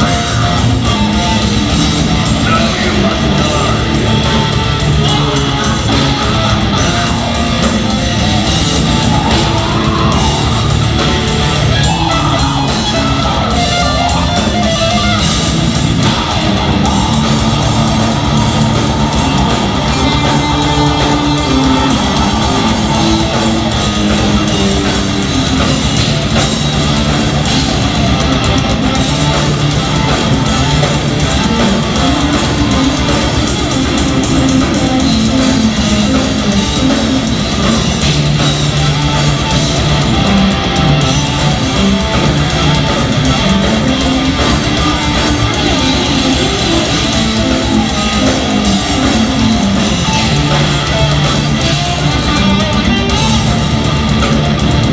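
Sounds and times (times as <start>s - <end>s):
metal band playing live: 0.0s - 54.9s.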